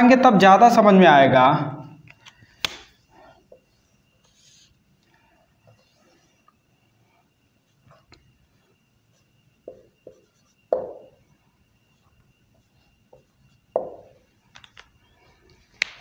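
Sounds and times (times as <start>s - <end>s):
faint high whine: 0.0s - 16.0s
marker drawing on whiteboard: 2.6s - 15.2s
hollow knocks on board: 9.7s - 11.1s, 13.8s - 14.1s.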